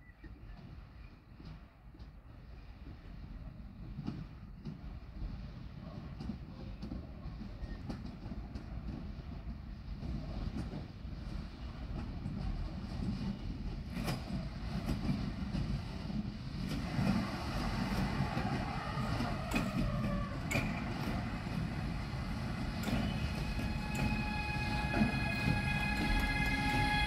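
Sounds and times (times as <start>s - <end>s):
train wheels rumbling on rails: 0.0s - 27.0s
wheels clicking over rail joints: 6.1s - 27.0s
electric locomotive whine: 6.8s - 27.0s.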